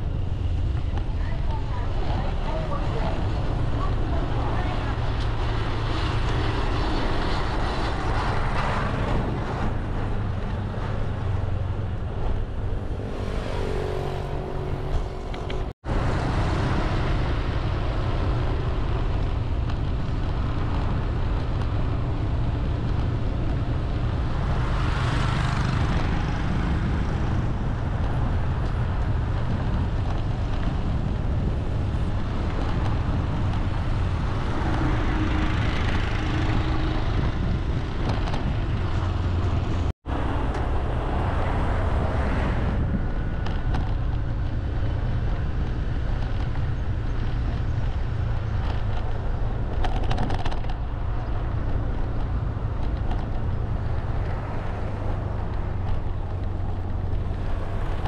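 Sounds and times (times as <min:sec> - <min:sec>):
road traffic rumble: 0:00.0 - 0:58.0
vehicle passing: 0:01.2 - 0:30.5.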